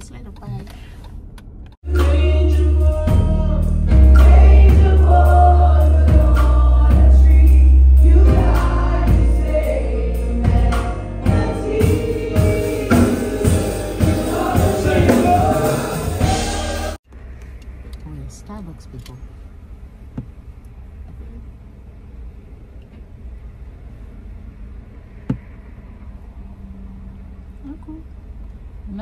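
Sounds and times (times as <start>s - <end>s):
gospel singing: 1.8s - 17.0s
heavy bass line: 1.8s - 17.0s
steady drum beat: 1.9s - 17.0s.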